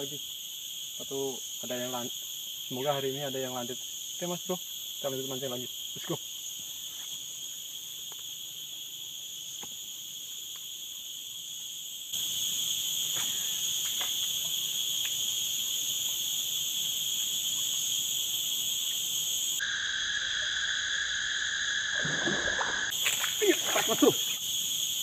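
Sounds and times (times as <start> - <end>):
chorus of insects singing: 0.0 - 25.0
lower-pitched insect: 0.0 - 25.0
faint ticks: 13.2 - 15.3.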